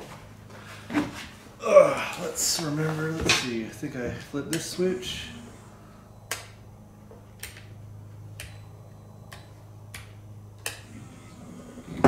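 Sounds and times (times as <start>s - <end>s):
small motor humming: 8.4s - 12.0s.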